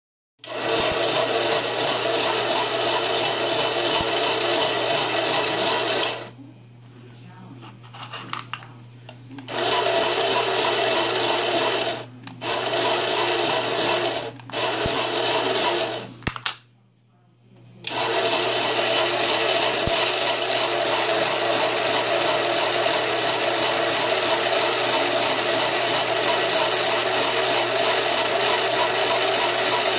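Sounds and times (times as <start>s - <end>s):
toy sewing machine rattling: 0.4s - 6.3s, 9.5s - 16.1s, 17.9s - 29.9s.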